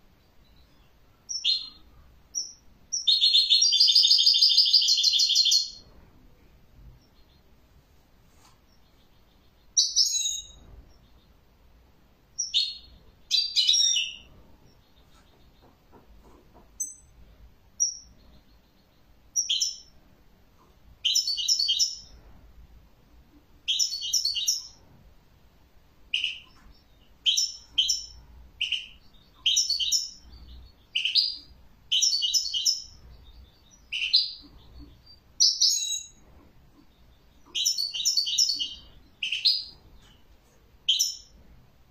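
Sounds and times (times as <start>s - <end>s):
goldfinch twittering song: 8.8s - 11.2s, 26.1s - 36.2s, 36.8s - 39.7s.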